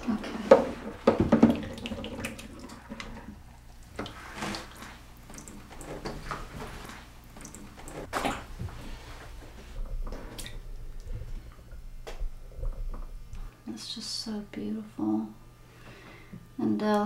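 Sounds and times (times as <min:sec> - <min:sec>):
water splashing and dripping: 0:01.0 - 0:08.5.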